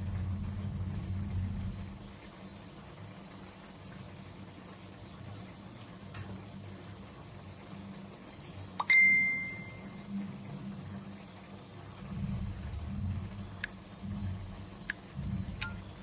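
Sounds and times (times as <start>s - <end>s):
low steady hum: 0.0s - 16.0s
bright ding: 8.8s - 10.0s.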